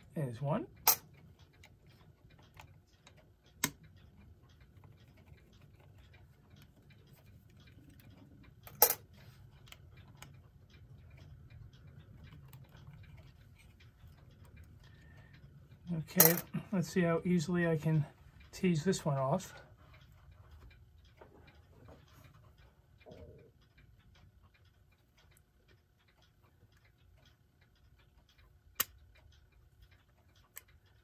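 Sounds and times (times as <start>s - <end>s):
tool clicking and tapping on metal: 0.0s - 10.4s, 15.8s - 23.4s
sharp clicks: 0.7s - 31.0s.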